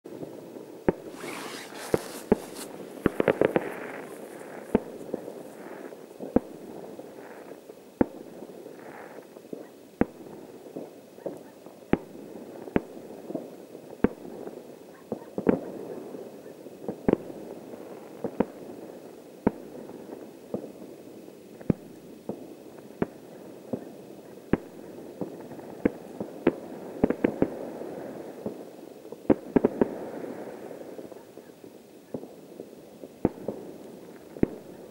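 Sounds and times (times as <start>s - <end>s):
fireworks bangs: 0.8s - 8.3s
brief hiss: 1.0s - 4.8s.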